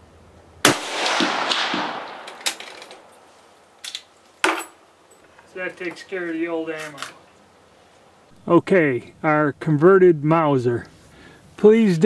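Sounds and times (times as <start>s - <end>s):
rifle shot echoing: 0.6s - 3.2s.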